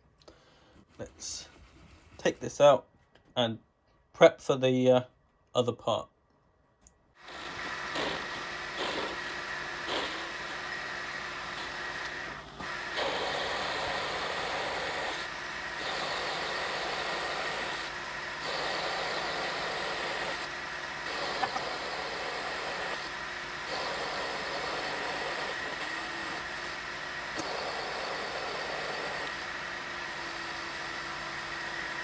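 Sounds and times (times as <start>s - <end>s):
lathe whining: 7.2s - 32.0s
tool cutting metal: 7.2s - 32.0s.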